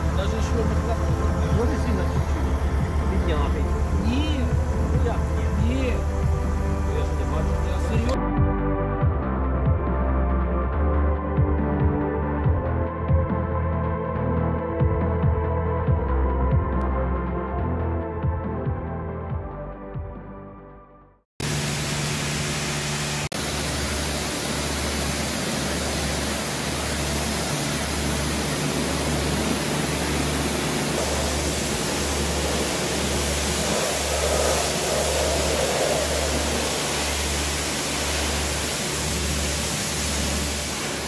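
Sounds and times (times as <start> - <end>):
low throbbing pulse: 0.0 - 20.3, 21.4 - 41.0
pressure washer spray hissing: 21.4 - 41.0.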